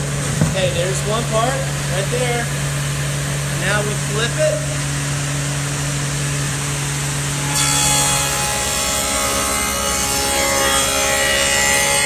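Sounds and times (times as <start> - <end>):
table saw cutting board: 6.4 - 12.0.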